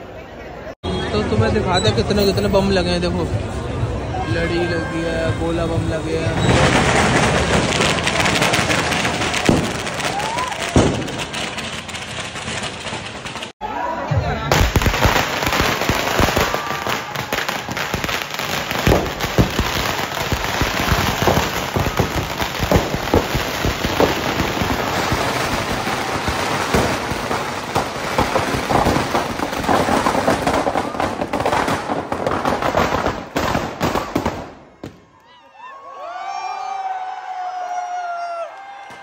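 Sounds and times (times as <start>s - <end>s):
loud blasts: 5.2s - 13.5s, 14.5s - 34.9s
firecrackers crackling: 5.6s - 13.6s, 14.4s - 35.1s.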